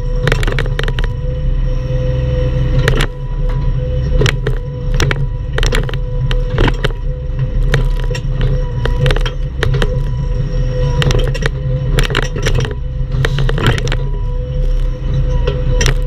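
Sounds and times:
diesel engine running: 0.0 - 16.0
hydraulic whine: 0.0 - 16.0
metallic clanks and knocks: 0.2 - 1.2, 4.2 - 10.2, 11.0 - 14.2.

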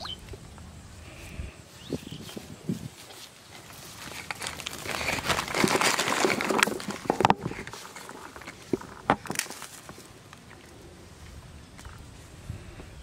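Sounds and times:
plastic wrapper crinkling: 3.7 - 9.9.

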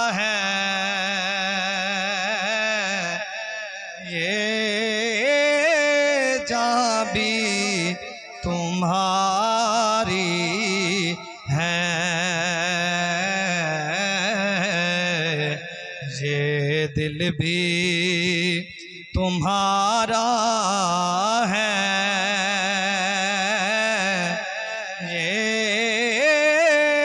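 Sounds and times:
man singing into microphone: 0.0 - 27.0.

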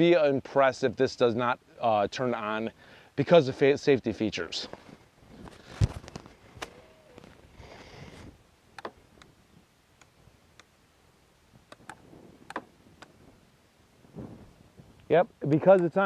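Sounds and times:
brief rustle: 4.6 - 7.4.

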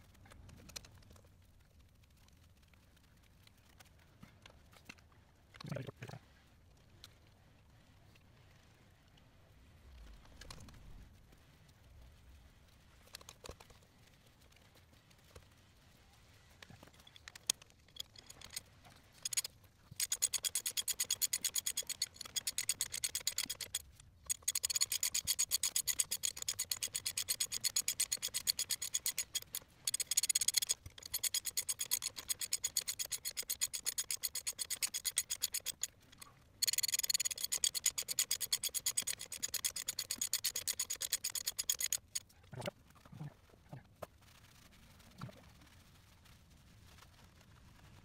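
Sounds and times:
hand ratchet clicking: 17.3 - 18.6, 19.2 - 42.2.

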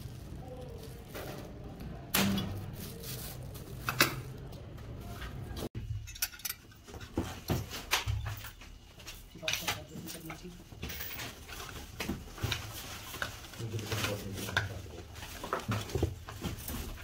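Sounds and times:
metal parts clinking: 5.9 - 6.9.

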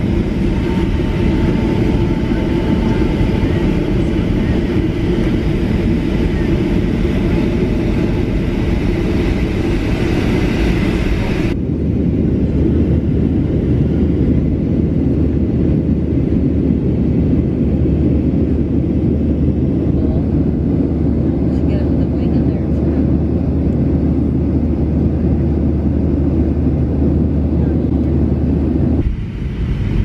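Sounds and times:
airliner cabin low rumble: 0.0 - 30.0.

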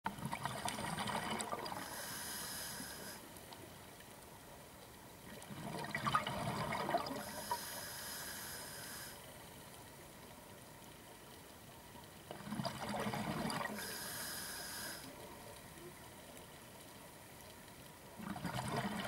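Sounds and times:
hissing regulator inhales: 1.8 - 3.3, 7.2 - 9.3, 13.8 - 15.1.

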